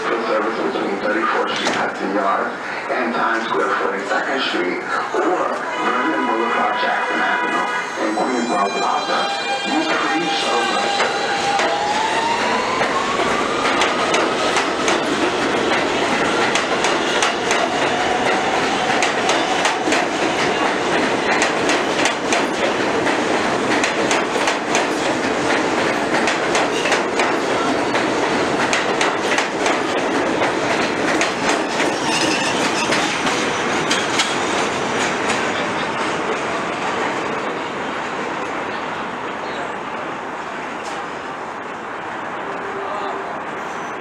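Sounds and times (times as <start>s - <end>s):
subway train motors whining: 0.0s - 44.0s
train wheels clacking over rail joints: 12.7s - 36.4s.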